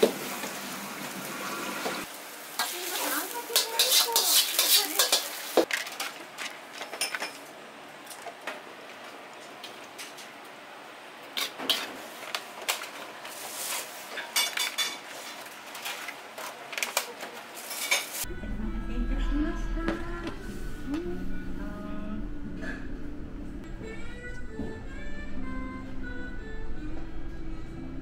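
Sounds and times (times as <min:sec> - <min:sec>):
utensils and dishes clattering: 0:02.6 - 0:06.2, 0:06.8 - 0:07.5, 0:13.7 - 0:18.3.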